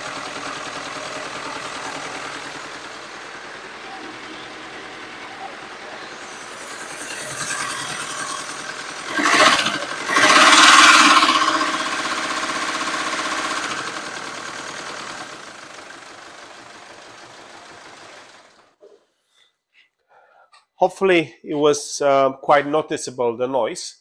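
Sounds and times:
van engine running with abnormal noise: 0.0s - 18.8s.

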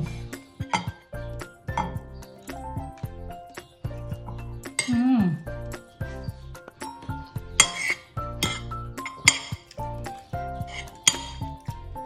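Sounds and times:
background music with beat: 0.0s - 12.0s
cutlery clinking on plate: 0.6s - 1.0s, 1.7s - 2.0s, 7.6s - 9.8s, 10.7s - 11.6s.

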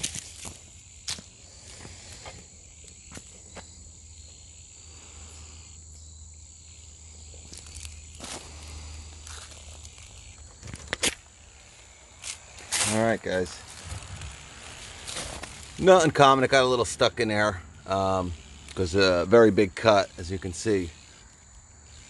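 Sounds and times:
high-pitched insect drone: 0.0s - 22.0s
rustling steps through shrubs: 7.4s - 16.2s.

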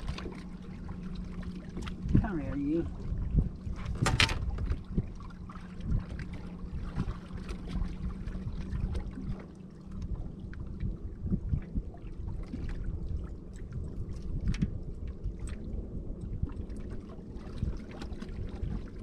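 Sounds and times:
low wind rumble: 0.0s - 19.0s
steady low hum: 0.0s - 19.0s
water lapping: 0.0s - 19.0s
light knocks on boat: 3.8s - 4.8s.

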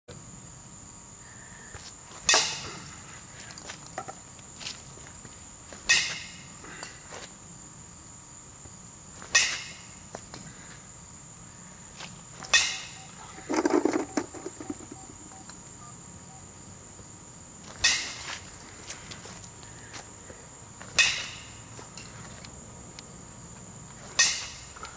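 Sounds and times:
baseball bat hitting balls: 2.2s - 2.9s, 5.8s - 7.0s, 9.2s - 10.0s, 12.4s - 15.4s, 17.8s - 18.4s, 20.9s - 22.2s, 24.0s - 24.8s.

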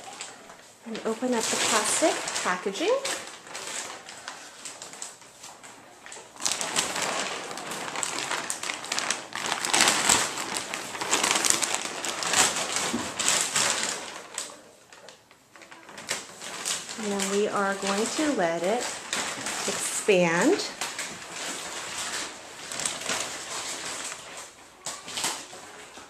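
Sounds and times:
plastic wrapping crinkling: 0.0s - 26.0s.

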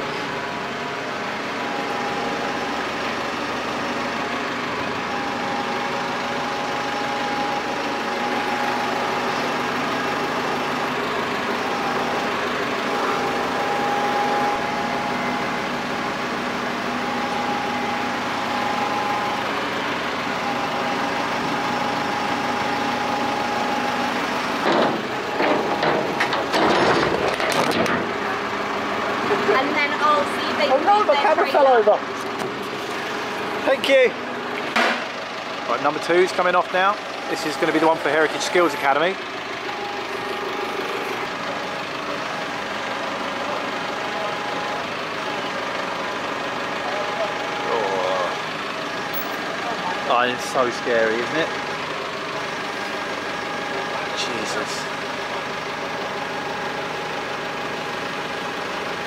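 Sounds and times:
hydraulic crane whine: 0.0s - 59.0s
truck engine drone: 0.0s - 59.0s
metal knocks and clatter: 24.6s - 28.1s.

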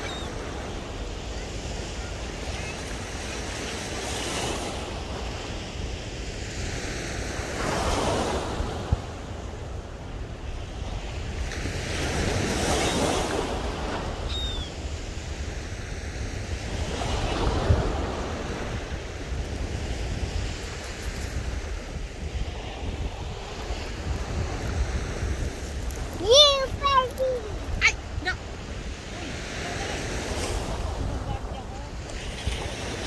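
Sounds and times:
wind rumble on microphone: 0.0s - 33.0s
surf breaking on beach: 14.9s - 33.0s.

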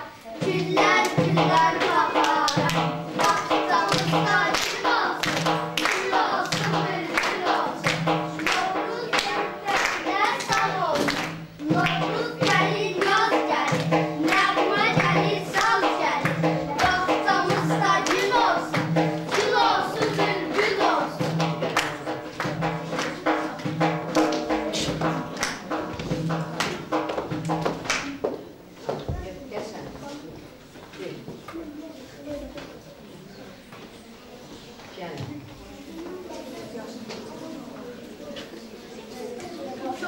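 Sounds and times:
hands clapping in time: 2.2s - 20.8s, 21.6s - 23.5s, 24.1s - 25.8s, 26.6s - 28.4s.

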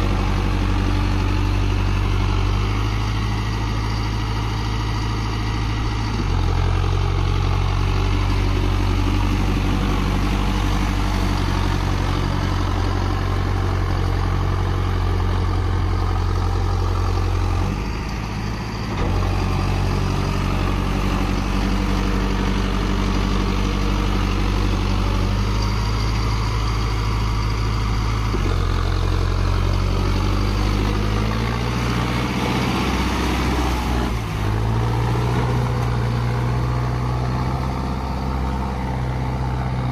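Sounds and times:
tractor diesel engine under load: 0.0s - 39.9s.

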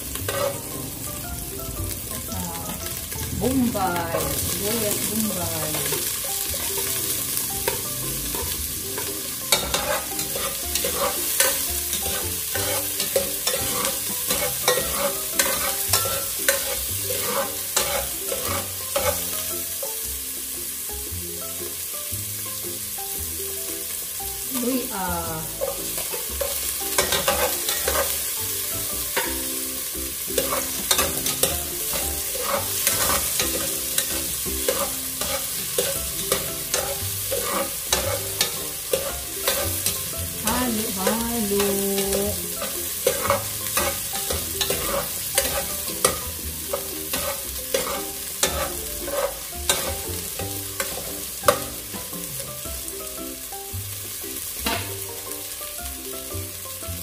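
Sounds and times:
metal ladle scraping a pot: 0.0s - 0.7s, 5.7s - 19.4s, 25.6s - 28.4s, 30.3s - 40.0s, 42.0s - 50.0s
onion sizzling in hot oil: 0.0s - 57.0s.

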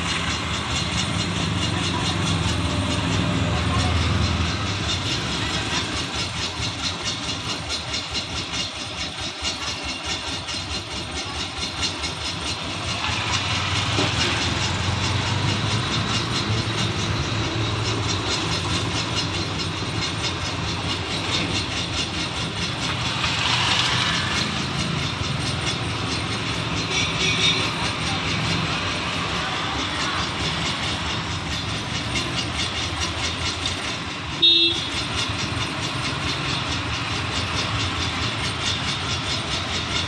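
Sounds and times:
cars passing: 0.0s - 6.4s
motorcycles passing: 0.0s - 6.4s, 12.7s - 21.5s, 22.4s - 39.8s
auto-rickshaws passing: 0.0s - 40.0s
fast even ticking: 0.0s - 40.0s.

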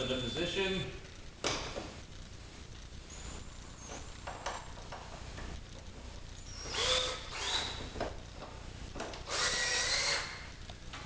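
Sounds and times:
cordless drill driving screw: 6.5s - 7.8s, 9.2s - 10.4s.

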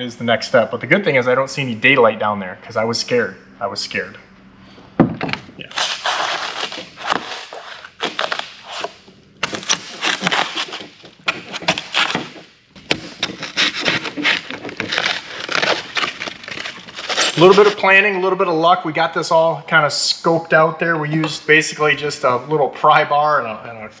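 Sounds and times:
pry bar crunching foam: 5.7s - 18.0s.

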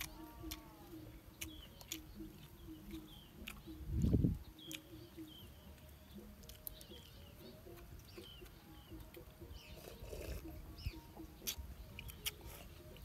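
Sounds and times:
chopsticks clicking on coconut shell: 0.0s - 4.9s, 11.4s - 13.0s
faint birds chirping: 0.0s - 13.0s
person slurping: 9.8s - 10.7s.

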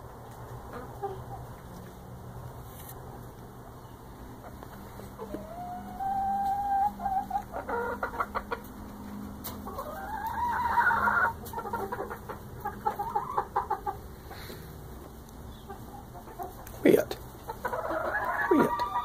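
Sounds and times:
hens clucking: 0.0s - 19.0s
hens squawking: 4.4s - 8.8s, 9.5s - 19.0s.

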